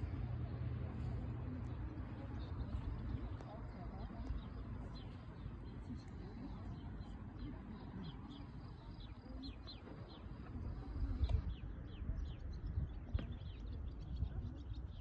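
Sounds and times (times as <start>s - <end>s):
small birds chirping: 0.0s - 15.0s
wind rumble on microphone: 0.0s - 15.0s.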